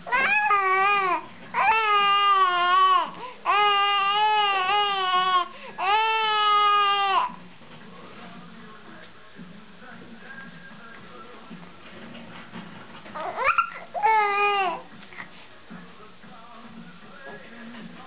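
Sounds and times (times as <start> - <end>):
baby cooing: 0.0 - 7.4, 13.2 - 15.3.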